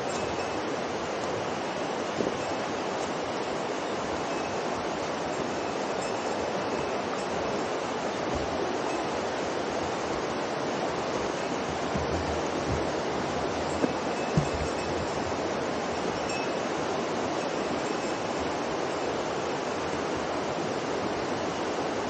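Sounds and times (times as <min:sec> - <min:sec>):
river rushing: 0:00.0 - 0:22.0
soft thuds: 0:11.7 - 0:15.3.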